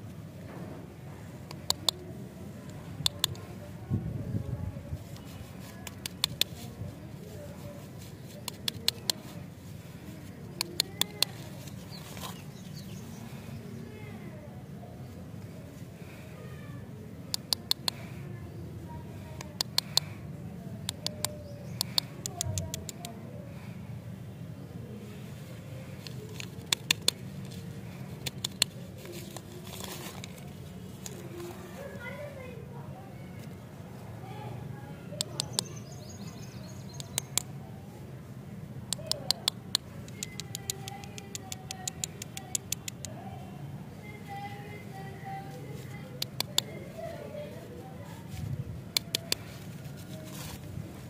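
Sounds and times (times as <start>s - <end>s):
plastic wrapper crinkling: 28.3s - 31.8s.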